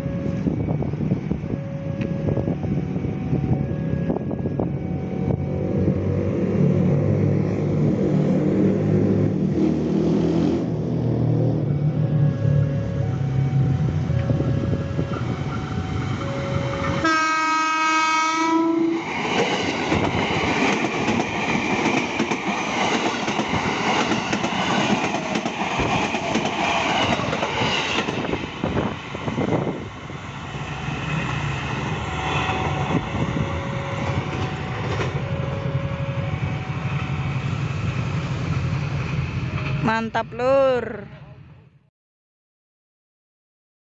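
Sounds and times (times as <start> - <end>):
train horn: 16.3 - 19.0
train wheels clattering over rails: 19.2 - 28.8.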